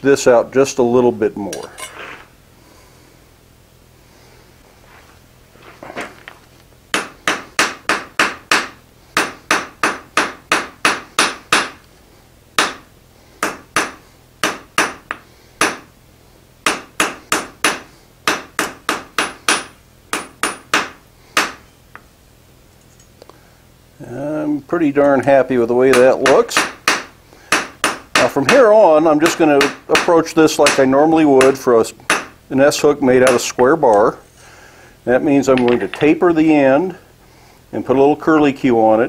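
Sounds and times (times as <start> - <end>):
hammer striking hot metal on anvil: 13.4 - 15.9, 16.7 - 21.6.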